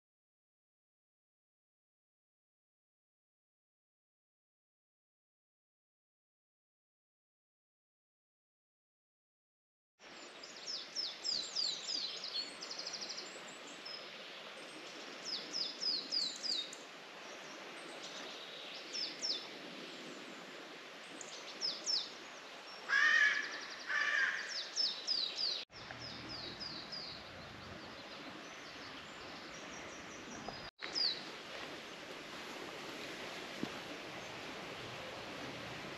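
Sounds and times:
songbird singing: 0:10.1 - 0:20.4, 0:21.1 - 0:32.1
crow cawing: 0:22.9 - 0:24.6.

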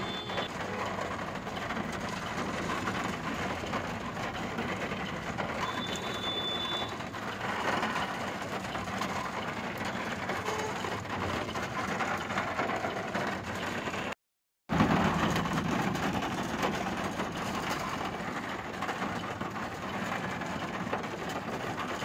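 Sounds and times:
brief high tone: 0:00.0 - 0:00.5
rain and tyres hissing through water: 0:00.0 - 0:14.0
engine hum: 0:00.0 - 0:14.1, 0:14.7 - 0:22.0.

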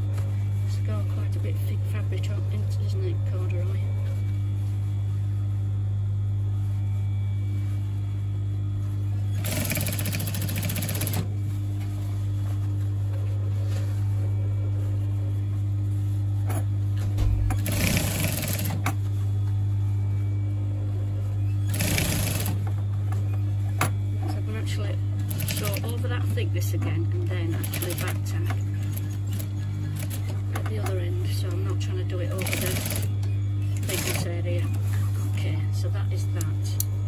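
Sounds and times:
steady low hum: 0:00.0 - 0:37.0
sewing machine stitching: 0:09.4 - 0:11.2, 0:17.5 - 0:18.8, 0:21.7 - 0:22.6, 0:32.3 - 0:33.1.

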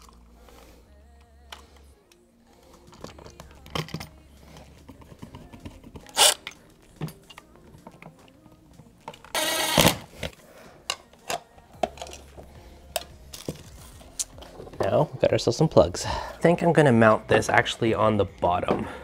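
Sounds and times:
impact driver driving screw: 0:06.1 - 0:06.4, 0:09.4 - 0:10.1.

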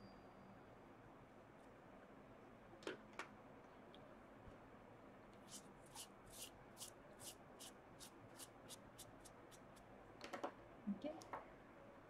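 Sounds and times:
scratchy rubbing strokes: 0:05.5 - 0:09.8.

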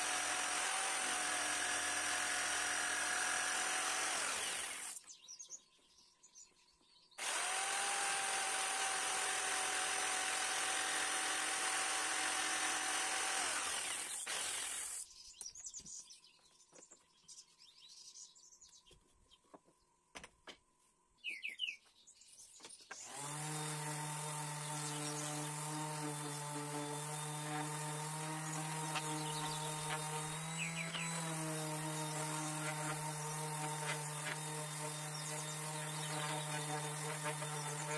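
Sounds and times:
jigsaw cutting wood: 0:00.0 - 0:05.0, 0:07.2 - 0:15.0, 0:23.0 - 0:37.9
orbit sander humming: 0:00.0 - 0:05.0, 0:07.2 - 0:15.0, 0:23.0 - 0:37.9.

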